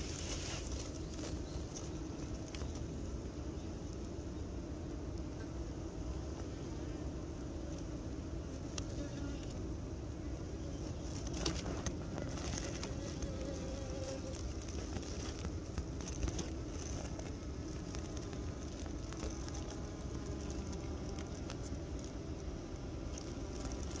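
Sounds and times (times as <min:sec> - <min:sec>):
honeybees buzzing: 0:00.0 - 0:24.0
small clicks and ticks: 0:11.1 - 0:22.2, 0:23.1 - 0:24.0.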